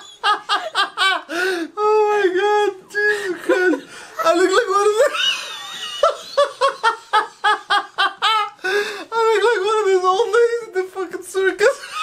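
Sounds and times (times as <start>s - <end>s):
person laughing hard: 0.0s - 1.7s, 4.8s - 9.0s.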